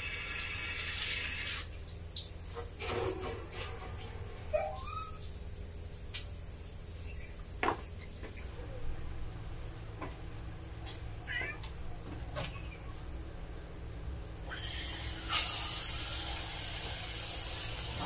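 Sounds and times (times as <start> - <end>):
steady hiss: 0.0 - 8.0, 13.1 - 18.0
low steady hum: 0.0 - 14.9
cat meow: 11.2 - 11.7.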